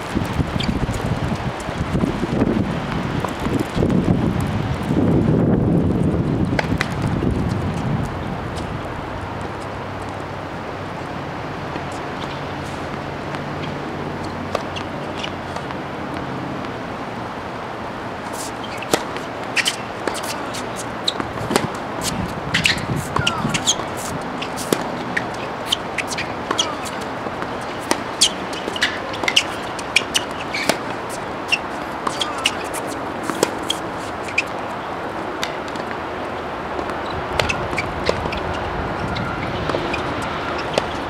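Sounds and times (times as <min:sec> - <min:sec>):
sneakers squeaking on court: 0:00.0 - 0:02.0, 0:11.0 - 0:16.8, 0:18.0 - 0:41.0
steady outdoor hiss: 0:00.0 - 0:41.0
rackets striking tennis ball: 0:11.6 - 0:15.8, 0:18.2 - 0:41.0
ball bouncing: 0:18.4 - 0:34.6.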